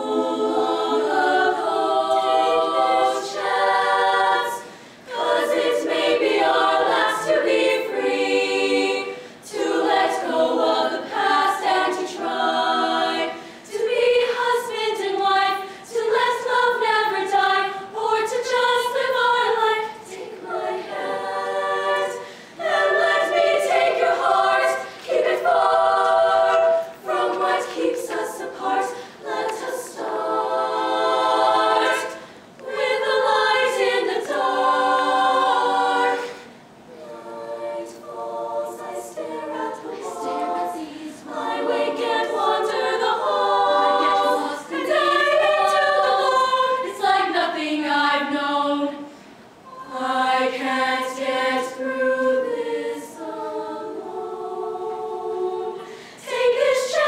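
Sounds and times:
female choir singing a cappella: 0.0s - 57.0s.

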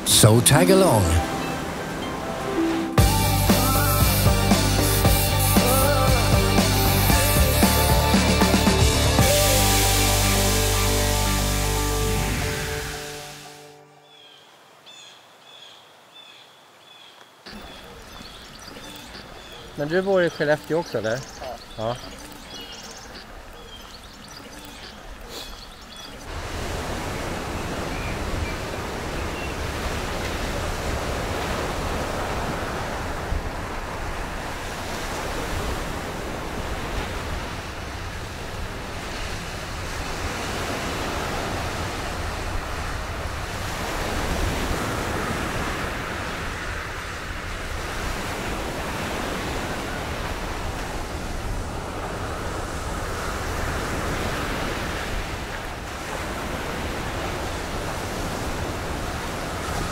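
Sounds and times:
sea surf washing onto beach: 0.0s - 13.5s, 26.2s - 59.9s.

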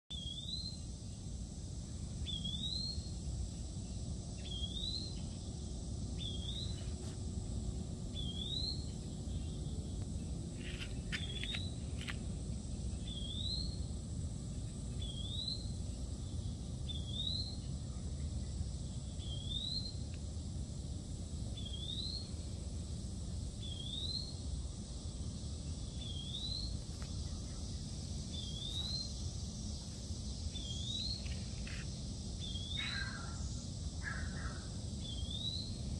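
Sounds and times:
low outdoor rumble: 3.0s - 17.0s
bird chirping: 8.1s - 11.8s.

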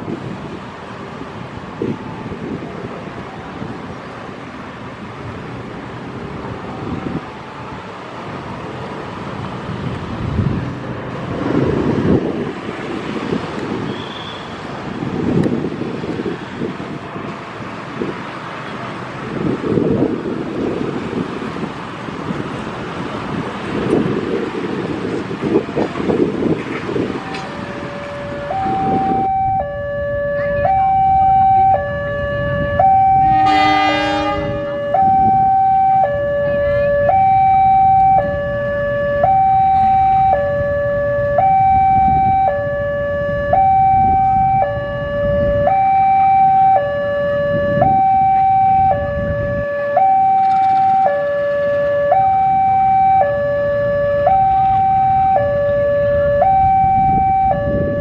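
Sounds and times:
diesel locomotive running: 0.0s - 45.6s
level-crossing two-tone alarm: 27.3s - 58.0s
locomotive horn blast: 27.4s - 38.4s.

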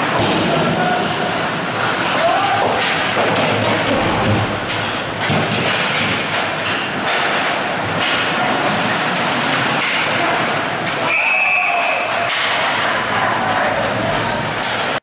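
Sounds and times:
sticks and puck knocking boards: 2.5s - 8.3s.

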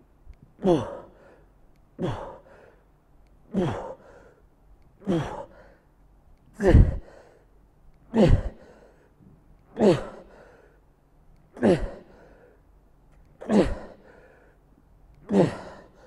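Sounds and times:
man grunting exhalations: 0.6s - 1.4s, 2.0s - 2.6s, 3.5s - 4.1s, 5.0s - 5.7s, 6.6s - 7.2s, 8.1s - 8.8s, 9.8s - 10.5s, 11.6s - 12.3s, 13.4s - 14.2s, 15.2s - 16.0s.

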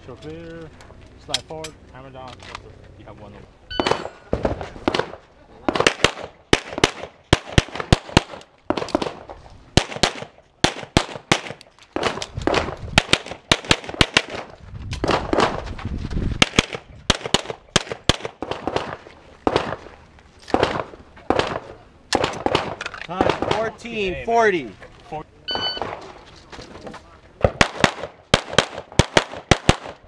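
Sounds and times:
pistol shots: 3.8s - 15.6s, 16.4s - 19.9s, 20.5s - 23.7s, 27.4s - 30.0s.

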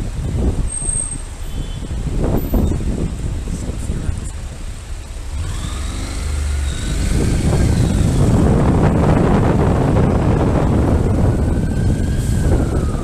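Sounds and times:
motorcycle rumbling: 0.0s - 13.0s
wind on microphone: 0.0s - 13.0s
emergency siren wailing: 5.5s - 13.0s.

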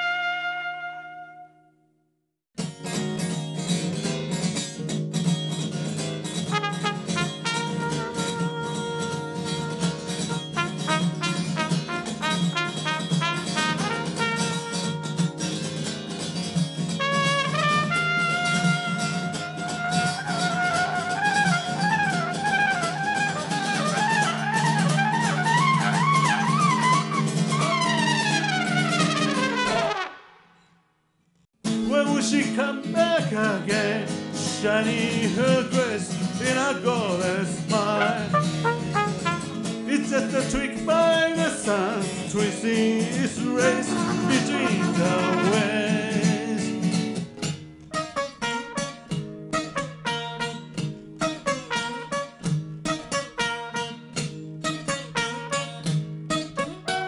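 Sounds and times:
acoustic guitar strumming: 0.0s - 1.6s, 2.6s - 30.7s, 31.6s - 57.0s
cornet playing a melody: 0.0s - 1.8s, 6.5s - 15.5s, 17.0s - 30.4s, 37.9s - 39.6s, 44.0s - 45.9s, 48.0s - 54.0s, 56.6s - 57.0s
band accompaniment: 6.4s - 15.6s, 16.8s - 30.2s, 37.7s - 39.9s
man singing: 31.8s - 38.8s, 39.8s - 47.2s.

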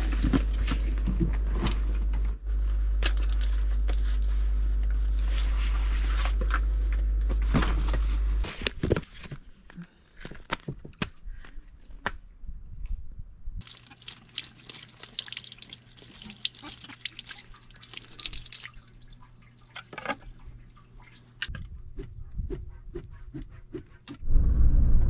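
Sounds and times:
low steady hum: 0.0s - 10.6s, 11.3s - 25.0s
water running and splattering: 13.6s - 21.2s
water drips: 13.6s - 21.5s.

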